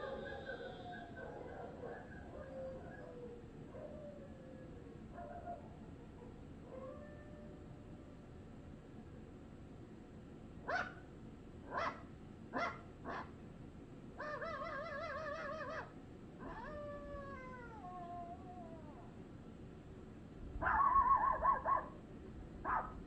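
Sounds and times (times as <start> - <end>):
cartoon dogs barking: 0.0 - 3.0, 10.7 - 11.0, 11.7 - 12.0, 12.6 - 13.3, 14.2 - 17.4, 20.6 - 22.0, 22.6 - 23.0
dog howling: 0.0 - 7.8, 14.2 - 19.2.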